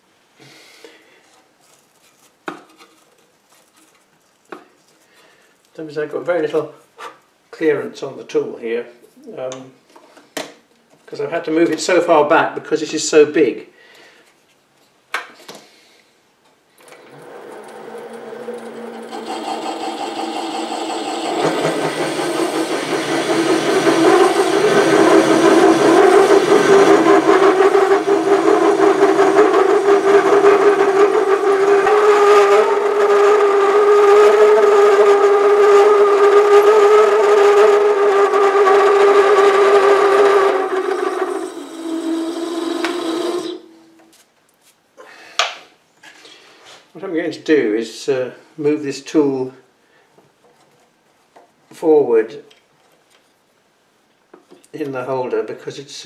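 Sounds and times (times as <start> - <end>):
lathe cutting metal ringing tone: 17.0 - 34.1, 38.9 - 44.0.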